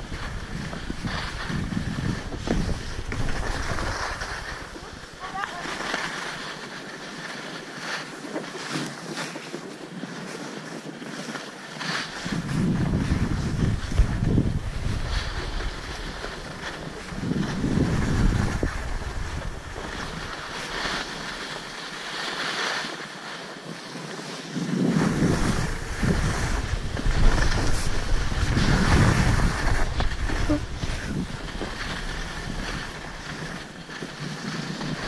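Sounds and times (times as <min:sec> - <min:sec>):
skis scraping over snow: 0:00.0 - 0:35.0
wind rumbling on microphone: 0:00.0 - 0:35.0.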